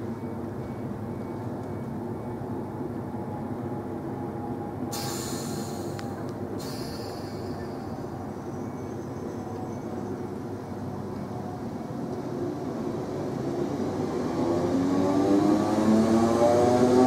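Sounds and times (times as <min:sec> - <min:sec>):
train equipment hum and rumble: 0:00.0 - 0:15.5
air hiss: 0:04.9 - 0:07.8.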